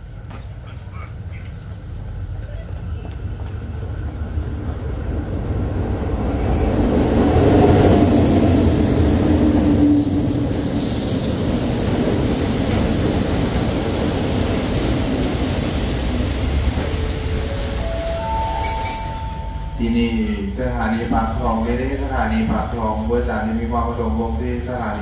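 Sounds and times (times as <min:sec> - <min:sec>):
train rumble: 0:00.0 - 0:25.0
high brake squeal: 0:05.9 - 0:09.2, 0:15.0 - 0:20.6.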